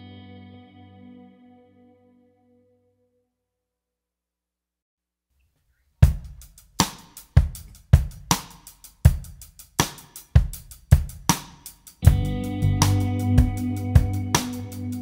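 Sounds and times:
drum beat with cymbals: 6.0s - 15.0s
sustained bass and chords: 12.0s - 15.0s.

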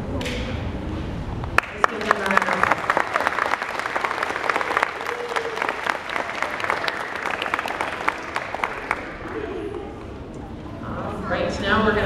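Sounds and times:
audience applauding: 1.6s - 10.2s.

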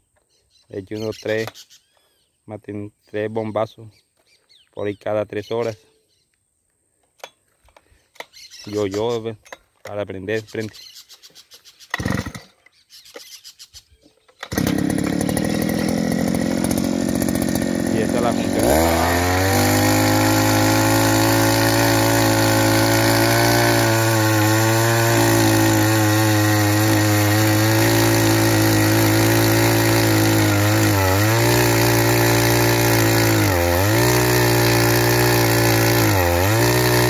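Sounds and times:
earth auger engine running: 11.9s - 12.5s, 14.4s - 37.0s.

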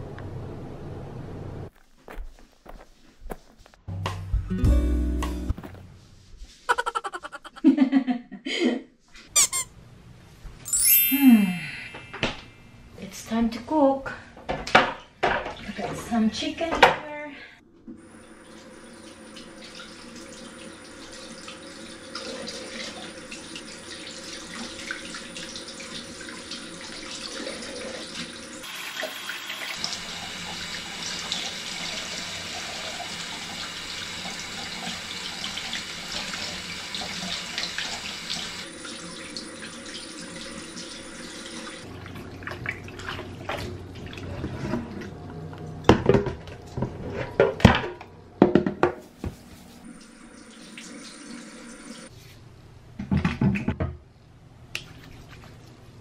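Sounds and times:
tap water running into sink: 19.2s - 44.2s.

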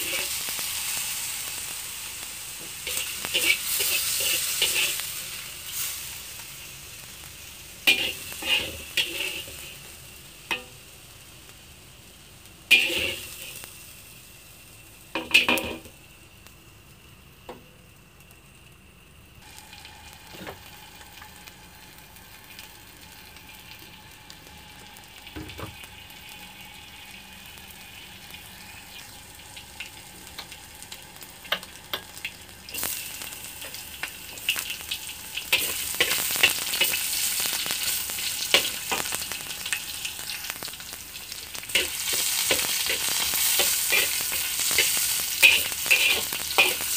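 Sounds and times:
oil sizzling in a wok: 0.0s - 46.9s
onions frying with crackles: 0.0s - 46.9s
metal spatula scraping: 2.8s - 5.0s, 7.8s - 9.8s, 12.7s - 13.5s, 41.7s - 46.9s.

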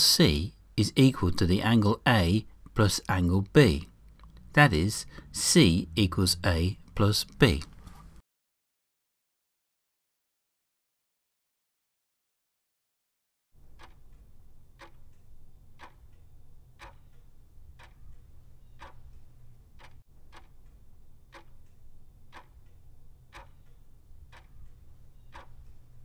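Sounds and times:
timer ticking: 0.8s - 7.8s, 13.7s - 26.0s.

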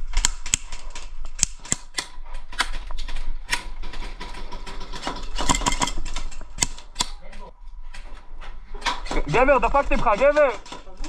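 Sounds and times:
airsoft gunshots and bb impacts: 5.3s - 7.2s.

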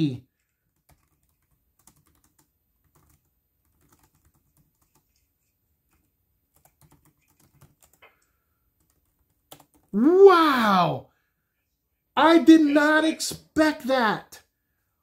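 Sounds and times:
faint clicks and taps: 0.4s - 9.9s.

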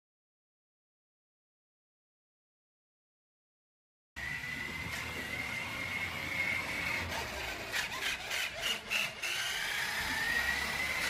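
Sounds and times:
toy truck electric motor whining: 4.2s - 11.0s.

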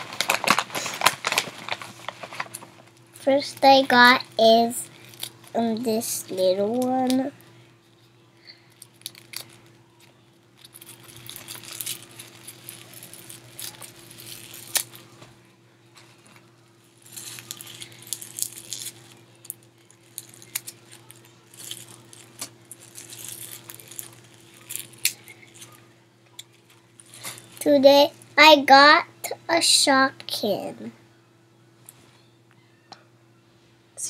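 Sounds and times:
foil wrapper crinkling and tearing: 0.0s - 3.9s, 4.5s - 7.4s, 8.5s - 15.3s, 16.0s - 27.8s
faint steady hum: 0.0s - 34.0s.

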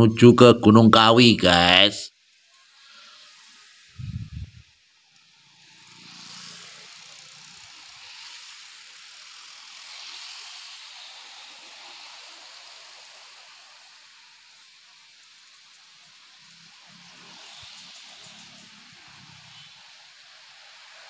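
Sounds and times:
low engine hum: 4.0s - 4.6s.

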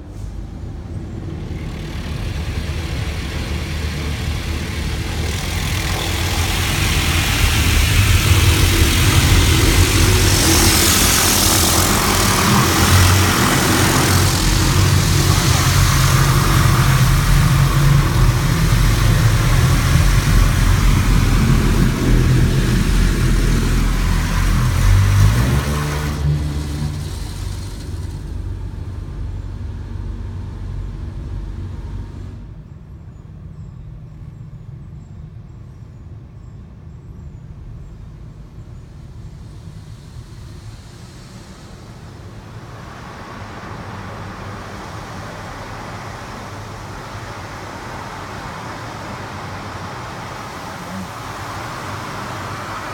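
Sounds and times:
low rumble: 0.0s - 36.0s
water spray hissing: 1.2s - 31.6s, 39.2s - 52.9s
wash equipment beating on car: 1.2s - 32.0s.

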